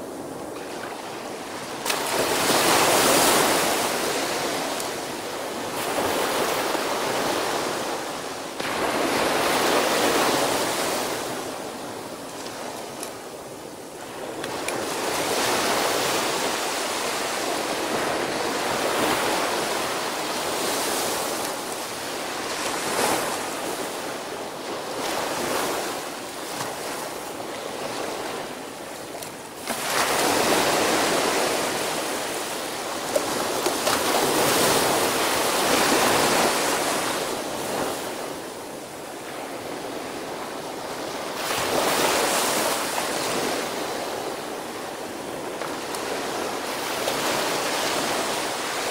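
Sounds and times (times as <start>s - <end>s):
small waves breaking on beach: 0.0s - 48.9s.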